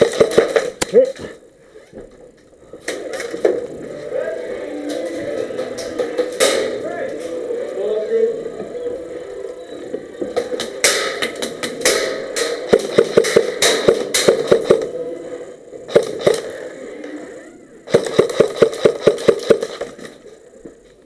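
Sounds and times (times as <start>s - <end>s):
airsoft guns firing: 0.0s - 1.1s, 5.4s - 6.9s, 10.4s - 15.0s, 15.9s - 16.7s, 17.9s - 20.2s.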